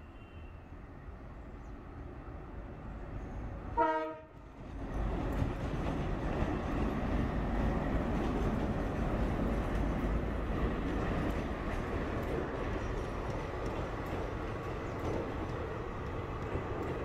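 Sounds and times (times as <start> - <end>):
train horn blast: 3.8 - 4.4
train wheel noise: 3.8 - 17.0.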